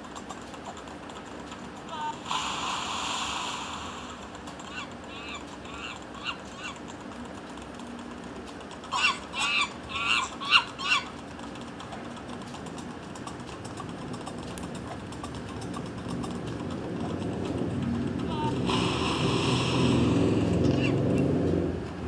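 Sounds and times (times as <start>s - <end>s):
game monkeys screeching: 0.2s - 7.6s, 8.5s - 14.1s, 18.2s - 21.2s.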